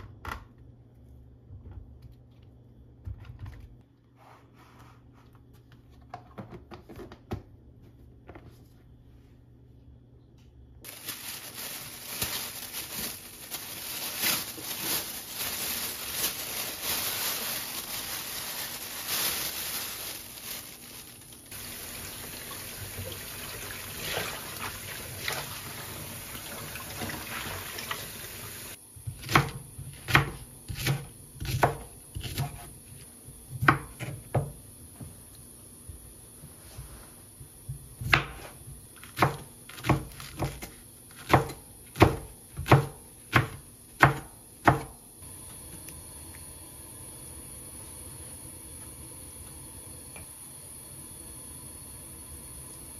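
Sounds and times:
tap water running into bowl: 21.6s - 28.7s.

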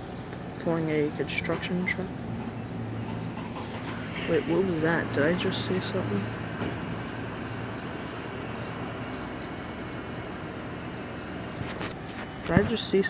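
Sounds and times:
distant road traffic hum: 0.0s - 13.0s.

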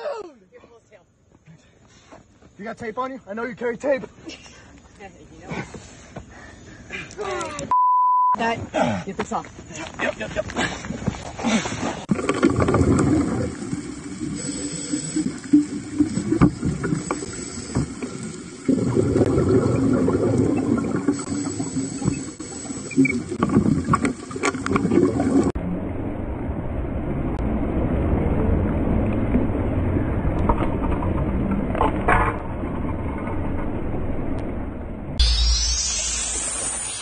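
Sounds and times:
low rumbling water: 11.8s - 37.0s
underwater clicks and bubbling: 12.1s - 25.6s.

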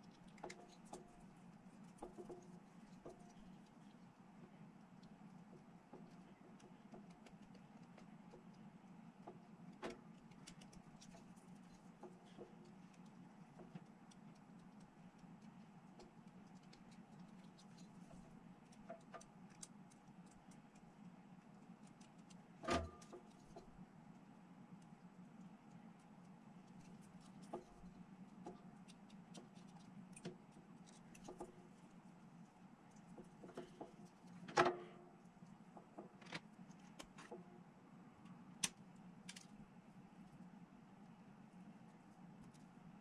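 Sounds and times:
low steady hum: 0.0s - 43.0s.

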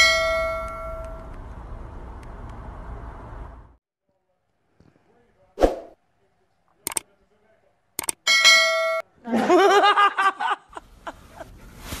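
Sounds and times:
short clicks: 6.8s - 7.1s, 8.0s - 8.2s
ding-like tone: 8.3s - 9.1s
human laughter: 9.2s - 11.6s.

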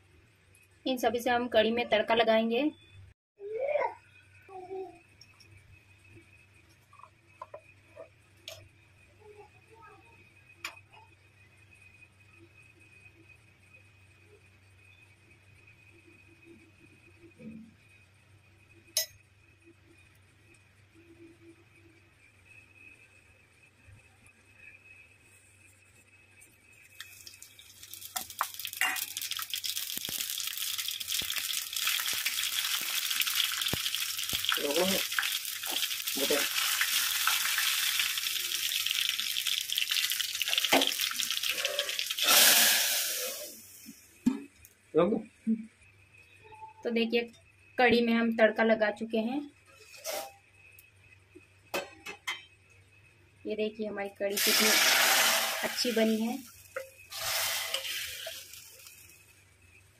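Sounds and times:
faint high whine: 0.0s - 39.4s, 40.0s - 59.9s
spices sizzling and crackling in oil: 26.6s - 44.1s, 54.4s - 59.8s.

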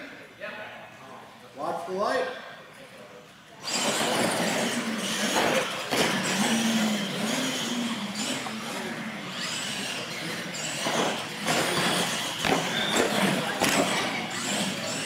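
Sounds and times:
rc trucks racing: 3.6s - 15.0s.

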